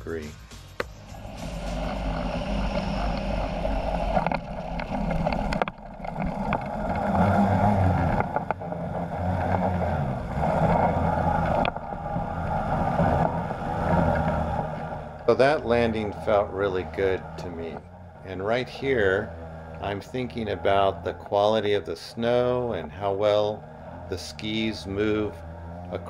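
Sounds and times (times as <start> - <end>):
small aircraft engine and propeller: 0.9 - 26.0
wind rushing over microphone: 1.0 - 17.8.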